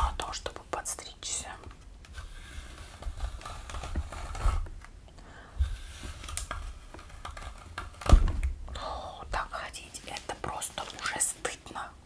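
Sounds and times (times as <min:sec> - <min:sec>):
fingernails rustling through hair: 0:01.4 - 0:04.9
dull thumps: 0:07.0 - 0:08.7.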